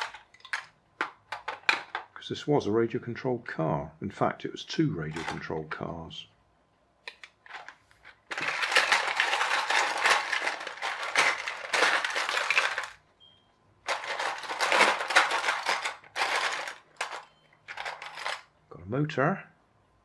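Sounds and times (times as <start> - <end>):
plastic bricks clattering in a tub: 0.0 - 2.2, 5.1 - 5.5, 7.1 - 13.0, 13.9 - 18.5.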